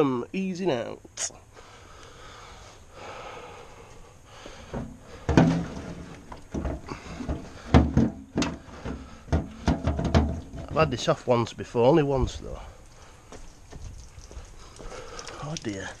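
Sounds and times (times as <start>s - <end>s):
knocks and clunks of fuel tank: 4.7s - 10.8s.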